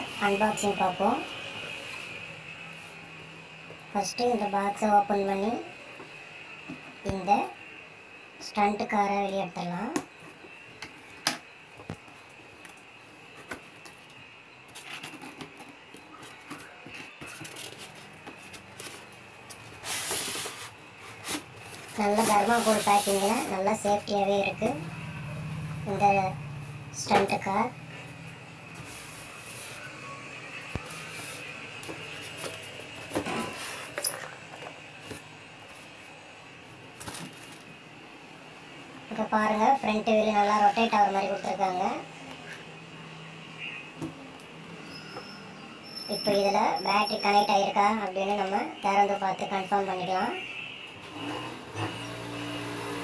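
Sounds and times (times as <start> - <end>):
cardboard and foam scraping: 14.7 - 23.6.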